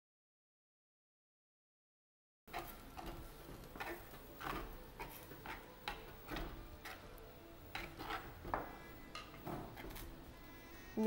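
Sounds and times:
metal spoon scraping earthenware pot: 2.5s - 10.4s.

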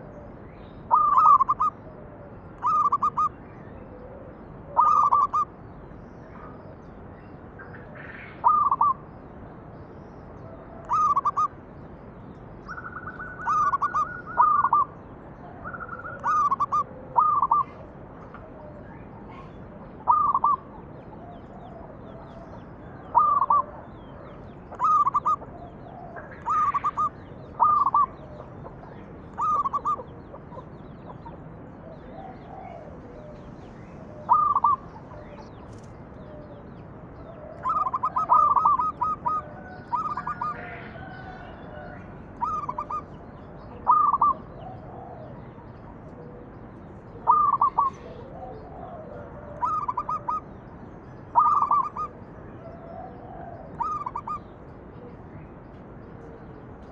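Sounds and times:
dove cooing: 0.0s - 0.3s, 0.9s - 3.3s, 3.9s - 5.5s, 8.1s - 9.0s, 10.4s - 11.5s, 12.7s - 50.5s, 51.3s - 54.5s
small birds chirping: 15.6s - 41.5s.

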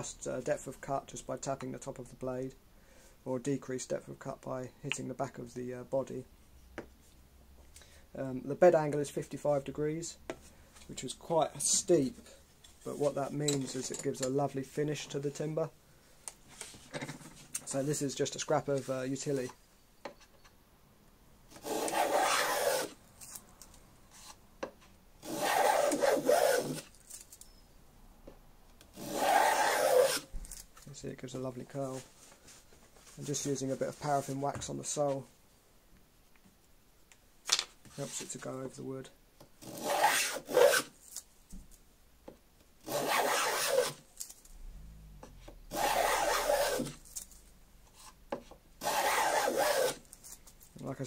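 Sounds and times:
hand plane shaving wood: 21.6s - 23.0s, 25.2s - 26.9s, 29.0s - 30.3s, 39.7s - 40.9s, 42.9s - 44.0s, 45.7s - 47.0s, 48.8s - 50.0s.

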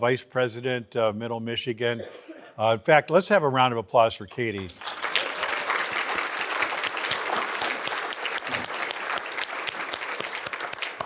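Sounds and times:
audience clapping: 4.3s - 11.0s.

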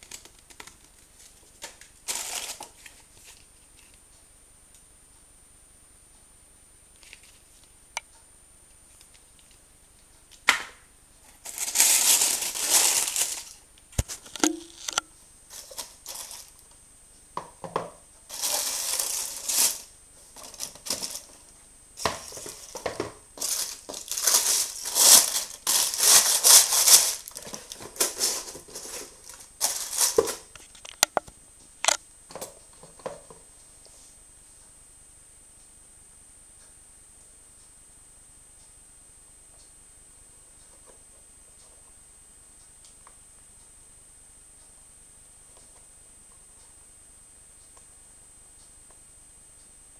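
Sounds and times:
tissue paper rustling: 2.0s - 3.4s, 11.3s - 14.2s, 15.5s - 16.5s, 18.3s - 21.4s, 22.0s - 30.5s.

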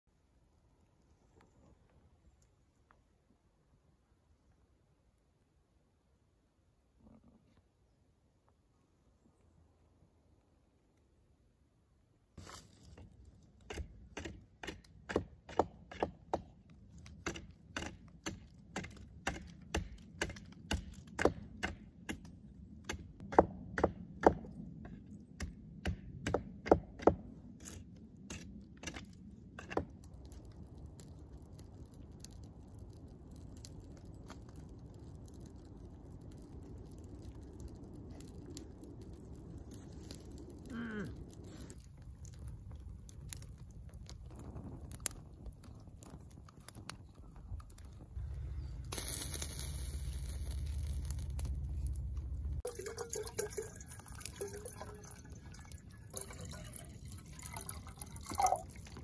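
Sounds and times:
hatchet striking a log: 13.7s - 16.6s, 17.2s - 27.2s.

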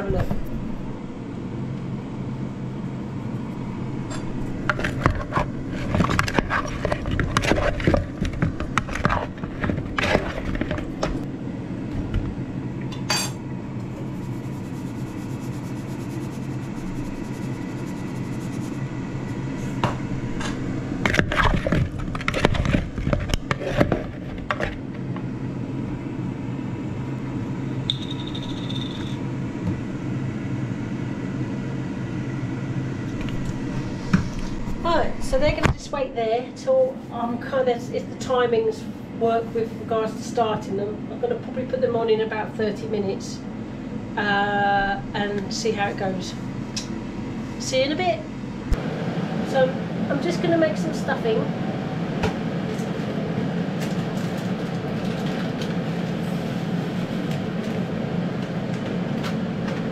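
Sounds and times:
steady low hum: 0.0s - 59.9s
wooden spoon scraping a bowl: 4.8s - 8.1s, 14.0s - 18.8s.

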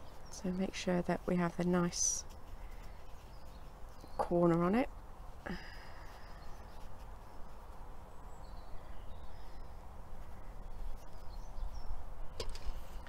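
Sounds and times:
faint bird chirps: 5.4s - 12.4s.

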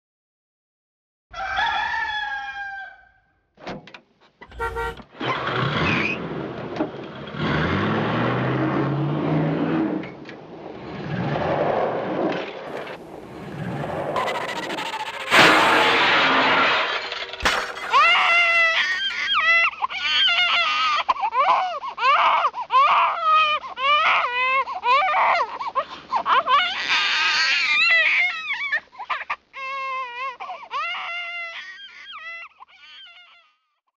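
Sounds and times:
crash: 4.5s - 5.0s, 11.0s - 19.4s
high-pitched wailing crying: 14.2s - 15.3s, 17.8s - 25.5s, 26.3s - 33.6s.

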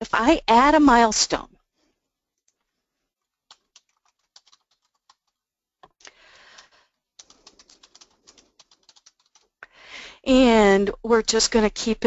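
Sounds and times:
keyboard typing: 3.4s - 5.4s, 6.4s - 9.6s.

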